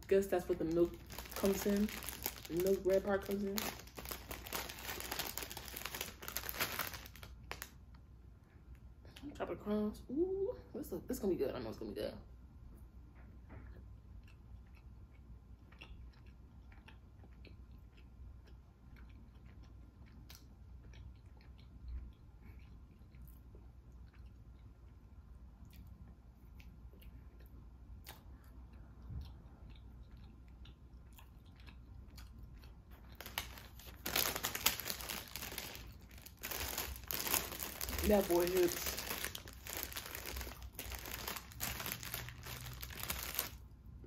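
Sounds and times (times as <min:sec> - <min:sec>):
paper bag crinkling: 0:00.2 - 0:07.7, 0:33.2 - 0:43.6
chewing mouth clicks: 0:13.7 - 0:33.2.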